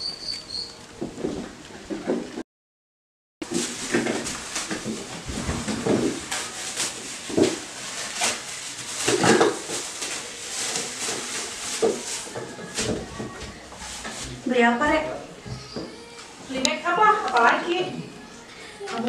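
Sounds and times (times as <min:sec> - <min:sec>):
packaging rustling: 0:03.4 - 0:14.4.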